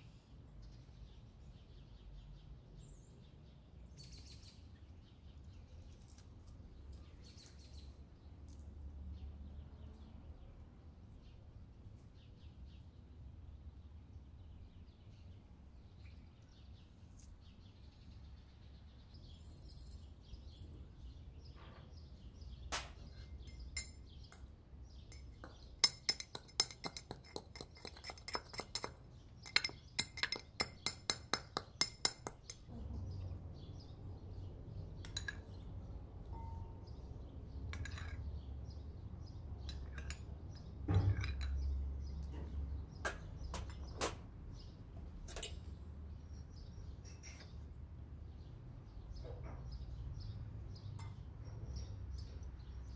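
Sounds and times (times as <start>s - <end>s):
pestle clinking in brass mortar: 25.1s - 32.7s.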